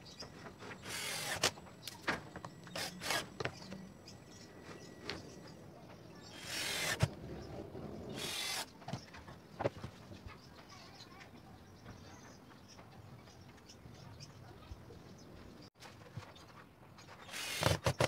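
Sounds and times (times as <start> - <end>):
drill driving screws into wood: 0.8 - 1.6, 2.7 - 3.6, 6.3 - 7.1, 8.1 - 8.7, 17.2 - 18.0.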